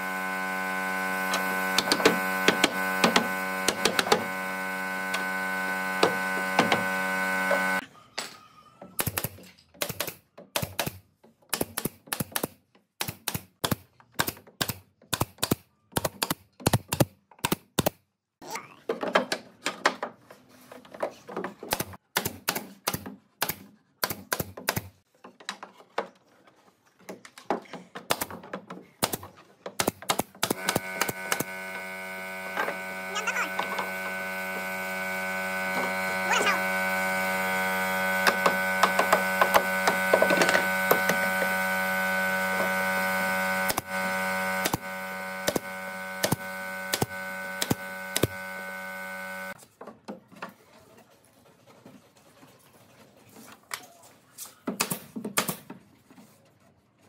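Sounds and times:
air compressor humming: 0.0s - 7.8s, 30.5s - 49.6s
nail gun firing: 1.3s - 4.3s, 9.0s - 18.0s, 21.6s - 25.0s, 28.1s - 28.4s, 29.0s - 31.7s, 38.2s - 41.5s, 43.5s - 48.7s, 54.7s - 55.7s.

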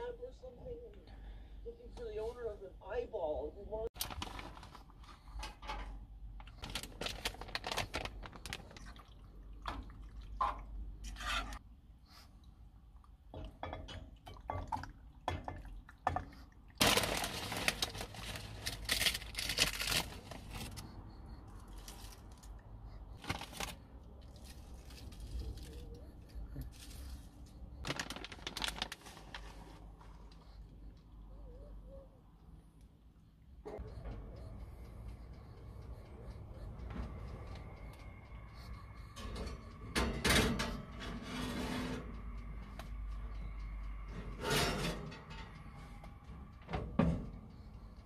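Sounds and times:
packets rustling: 4.0s - 5.3s, 6.4s - 8.9s, 16.8s - 20.8s, 23.2s - 23.8s, 27.8s - 29.8s
metal spoon scraping saucepan: 10.4s - 11.6s.

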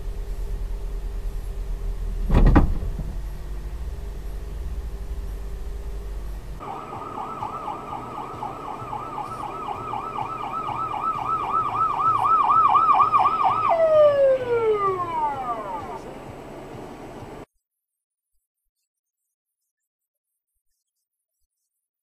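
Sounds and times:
low vehicle rumble: 0.0s - 17.5s
siren yelping: 6.6s - 16.1s.

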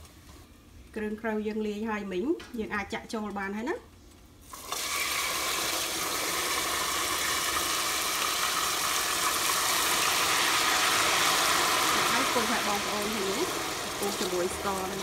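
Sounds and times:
sauce sizzling in hot oil: 4.4s - 15.0s.

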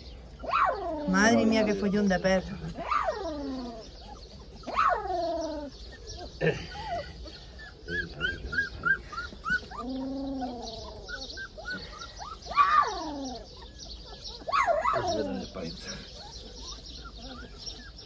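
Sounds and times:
puppies whining and yelping: 0.0s - 18.0s
puppy high squeaks: 2.8s - 6.3s, 7.9s - 15.4s, 16.2s - 18.0s.

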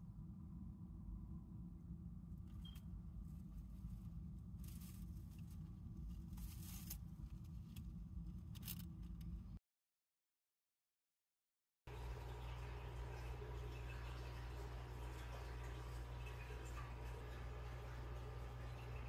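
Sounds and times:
low steady rumble: 0.0s - 9.6s
paper bedding rustling: 3.4s - 7.3s.

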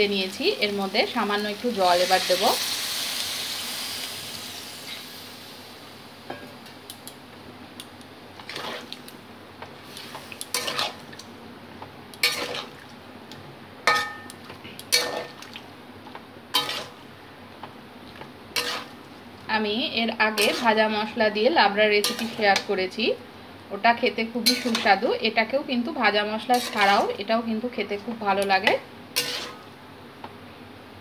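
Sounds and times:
oil sizzling: 0.0s - 30.0s
metal spatula scraping pan: 16.6s - 17.0s, 18.6s - 19.0s, 20.4s - 20.8s, 24.4s - 25.0s, 26.5s - 27.1s, 29.2s - 29.7s.

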